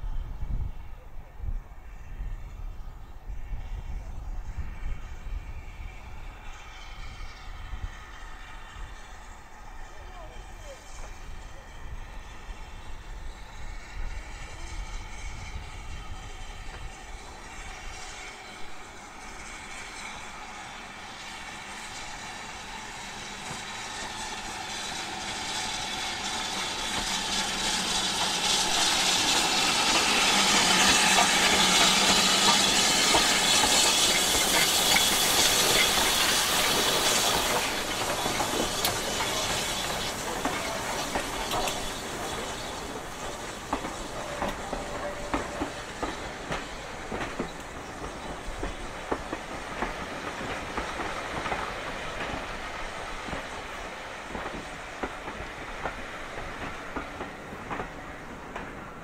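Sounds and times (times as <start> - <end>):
steam locomotive hissing: 0.0 - 59.0
train wheels clicking over rail joints: 12.4 - 59.0.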